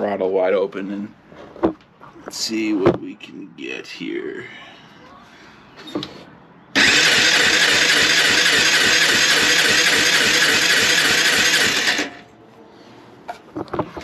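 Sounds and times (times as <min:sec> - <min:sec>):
electric starter cranking engine: 0:06.8 - 0:12.2.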